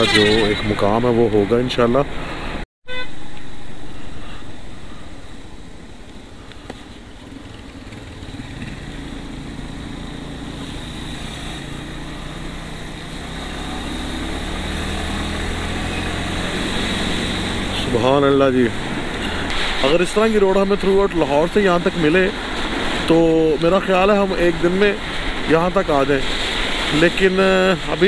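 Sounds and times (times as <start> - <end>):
road and wind noise: 0.0 - 28.0
motorcycle engine running: 3.9 - 17.9.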